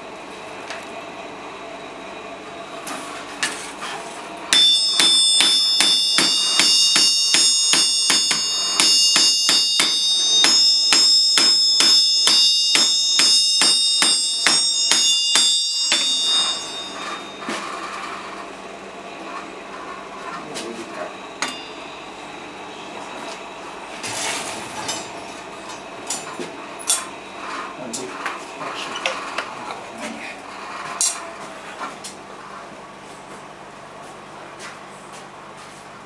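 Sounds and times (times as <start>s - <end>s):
hammer striking steel on anvil: 4.5s - 17.7s, 21.4s - 21.8s
anvil ringing: 4.5s - 18.1s, 21.4s - 21.9s.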